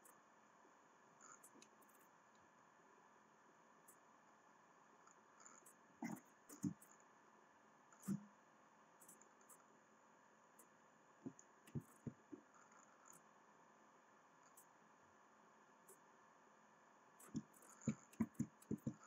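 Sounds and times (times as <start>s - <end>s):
computer mouse clicking: 5.5s - 7.0s, 11.3s - 12.4s, 17.2s - 19.0s.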